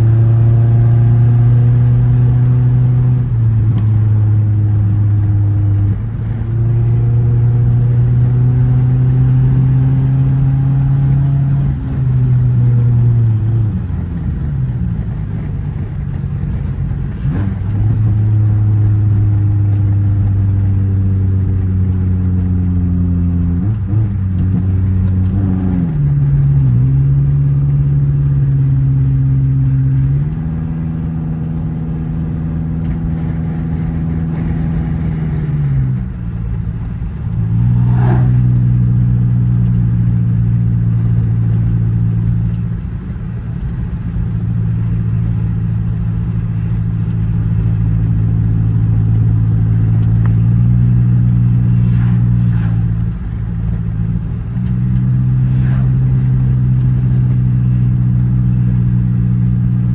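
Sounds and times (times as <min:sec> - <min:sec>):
car engine droning: 0:00.0 - 0:59.9
road noise: 0:00.0 - 0:59.9.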